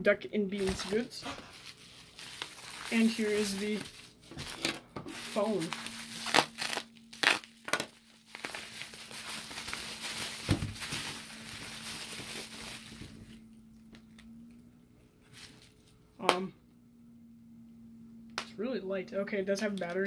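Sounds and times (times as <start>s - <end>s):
bubble wrap crinkling: 0.6s - 14.6s, 15.2s - 16.0s.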